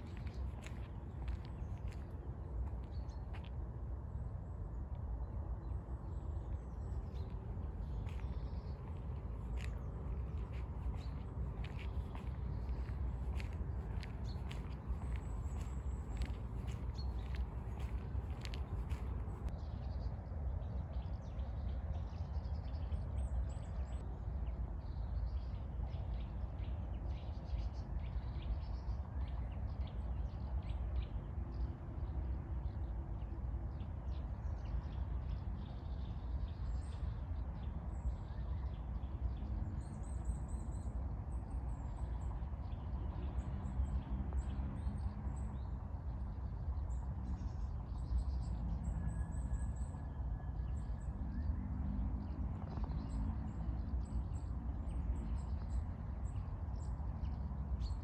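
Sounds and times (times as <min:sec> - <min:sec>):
steady low rumble: 0:00.0 - 0:25.4
small birds chirping: 0:06.8 - 0:19.6.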